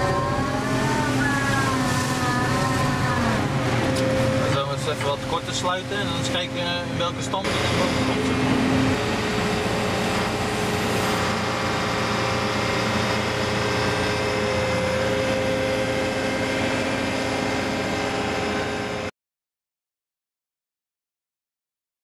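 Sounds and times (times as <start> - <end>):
heavy engine humming: 0.0 - 19.1.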